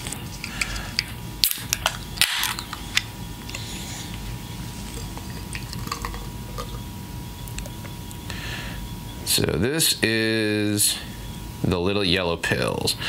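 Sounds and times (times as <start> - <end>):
beer pouring and fizzing: 5.4 - 6.7.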